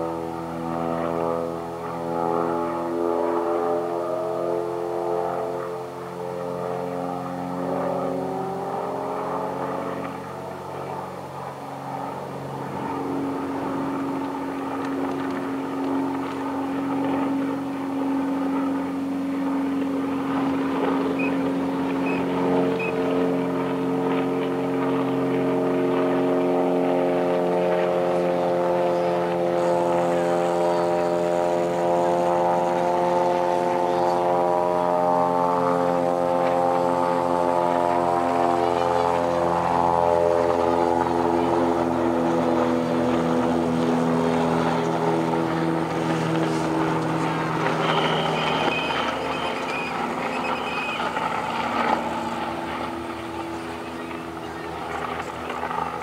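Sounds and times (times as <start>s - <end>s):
propeller aircraft engine droning: 0.0s - 56.0s.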